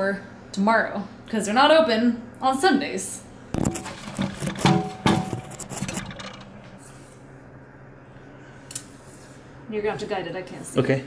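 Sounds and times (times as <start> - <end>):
faint steady hum: 0.0 - 11.0
porcelain knocks and scrapes: 3.6 - 6.7.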